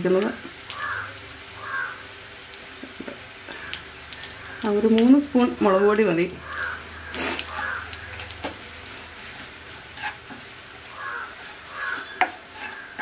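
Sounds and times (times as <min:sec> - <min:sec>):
spices sizzling in oil: 0:00.0 - 0:13.0
wooden spoon scraping a pan: 0:06.4 - 0:13.0.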